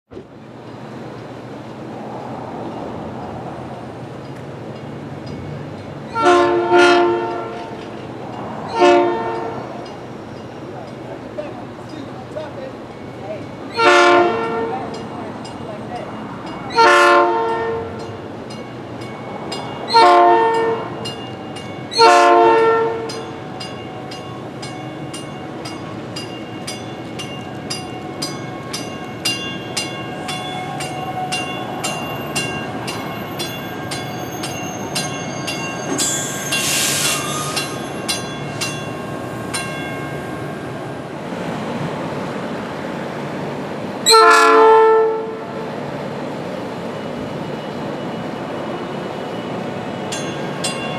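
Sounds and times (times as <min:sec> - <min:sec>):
train low rumble: 0:00.1 - 0:50.9
train horn blasts: 0:06.1 - 0:07.8, 0:08.7 - 0:09.9, 0:13.8 - 0:14.9, 0:16.7 - 0:18.1, 0:19.9 - 0:21.0, 0:22.0 - 0:23.2, 0:44.0 - 0:45.6.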